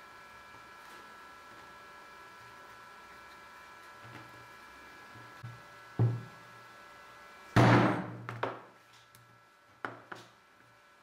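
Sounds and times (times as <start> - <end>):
knocks and thuds on cutting mat: 6.0 - 6.3, 7.6 - 8.6.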